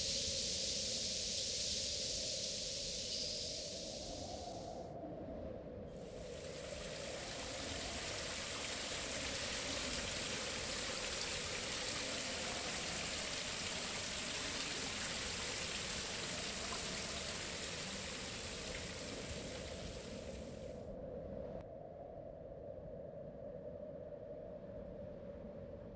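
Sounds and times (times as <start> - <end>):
running water rushing: 6.1 - 20.6.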